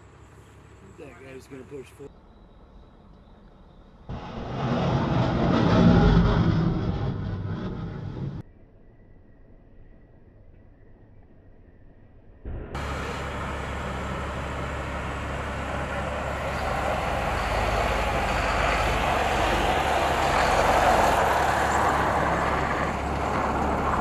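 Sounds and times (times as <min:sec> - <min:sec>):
truck diesel engine rumbling: 0:04.1 - 0:08.4, 0:12.8 - 0:24.0
wide rushing noise: 0:04.1 - 0:08.4.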